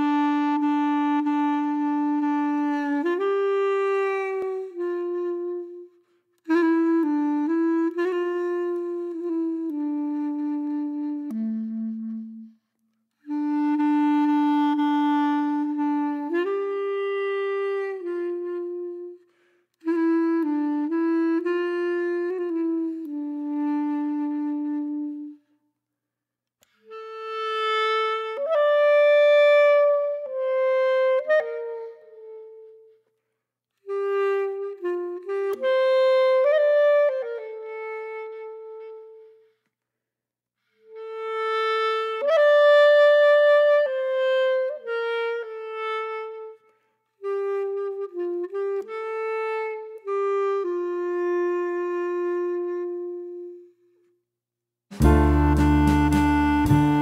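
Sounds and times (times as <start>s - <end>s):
slow solo melody: 54.9s - 57.0s.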